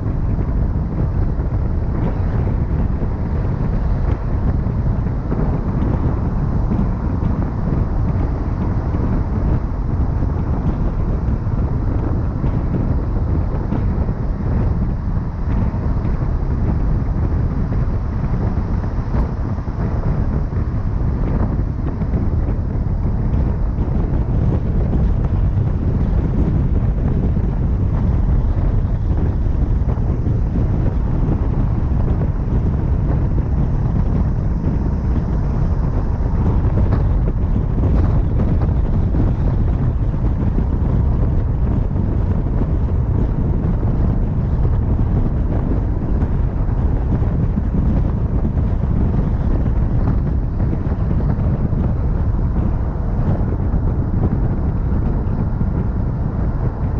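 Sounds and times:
vehicle road noise: 0:00.0 - 0:56.9
wind rumble on microphone: 0:00.0 - 0:56.9.

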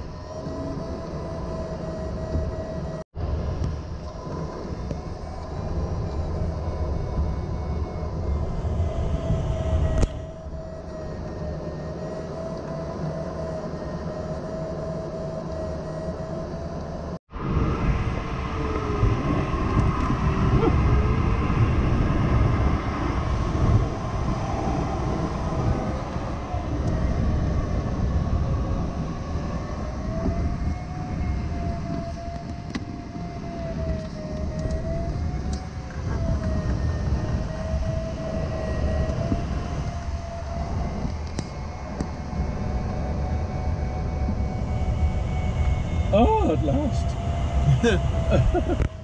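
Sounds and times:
electronic variometer tone: 0:00.0 - 0:49.0
rush of airflow: 0:17.2 - 0:31.6.

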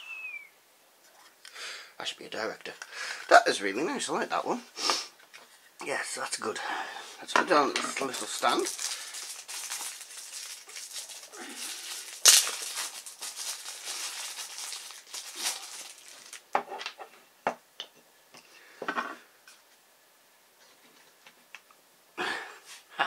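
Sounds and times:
hands rustling plastic parts: 0:07.3 - 0:17.1.

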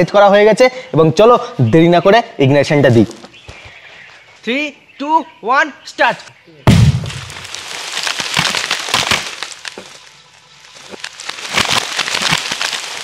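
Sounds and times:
explosion: 0:06.7 - 0:07.5
soil and debris raining down: 0:06.7 - 0:13.0.

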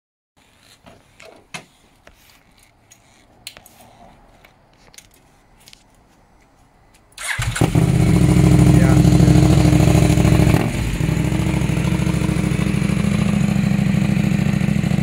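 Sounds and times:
handling clicks and rustling: 0:00.4 - 0:07.1.

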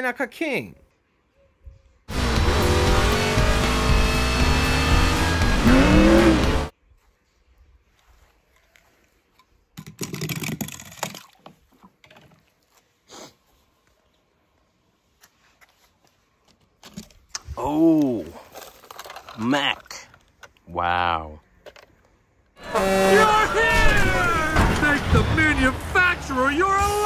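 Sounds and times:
race car engine running: 0:02.1 - 0:06.7.

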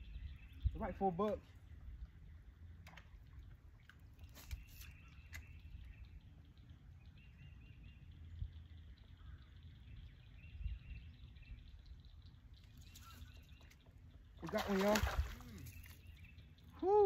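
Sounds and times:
wind rumble on microphone: 0:00.0 - 0:02.5, 0:04.5 - 0:13.6
faint bird chirps: 0:00.0 - 0:17.0.

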